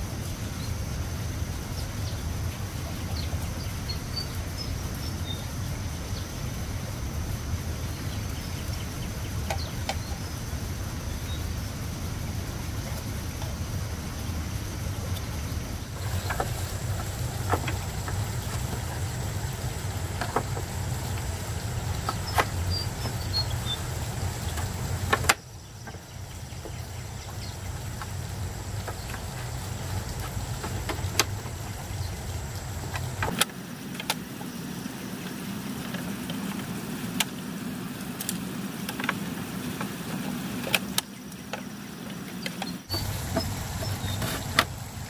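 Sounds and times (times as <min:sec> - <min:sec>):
low outdoor rumble: 0:00.0 - 0:45.0
hand tools clicking on bamboo: 0:24.5 - 0:26.0.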